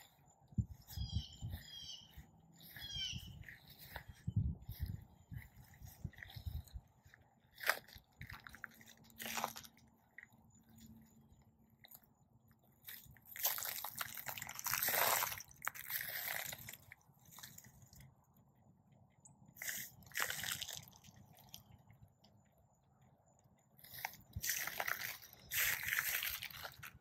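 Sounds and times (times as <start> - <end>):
footsteps crunching through pine straw: 0.7 - 6.8, 7.5 - 9.7, 13.3 - 16.8, 23.8 - 27.0.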